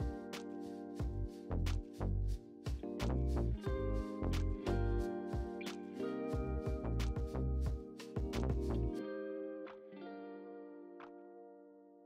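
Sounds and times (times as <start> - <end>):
music with steady drum beat: 0.0 - 9.0.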